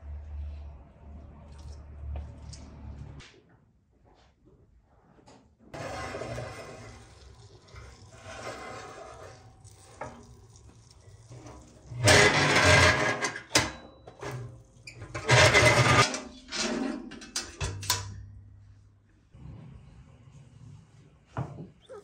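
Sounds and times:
metal pan grating across oven: 5.8 - 17.1.

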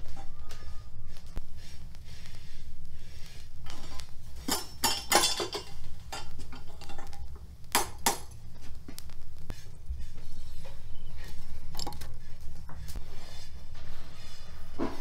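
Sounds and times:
metal tongs clinking on stove: 4.4 - 7.3.

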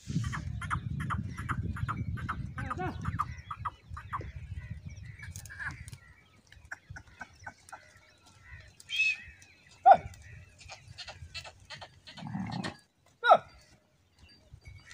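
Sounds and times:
wind rumble on microphone: 0.0 - 7.6, 14.3 - 14.9
birds chirping: 0.0 - 14.9.

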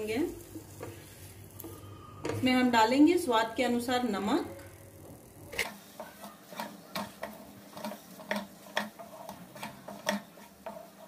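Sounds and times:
wooden spatula scraping a pan: 0.0 - 3.4, 5.6 - 11.0.

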